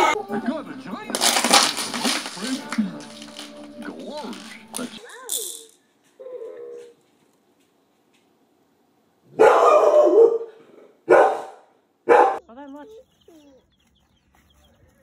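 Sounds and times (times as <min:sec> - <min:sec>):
dog whining: 0:06.2 - 0:07.0
dog barking loudly: 0:09.3 - 0:12.4.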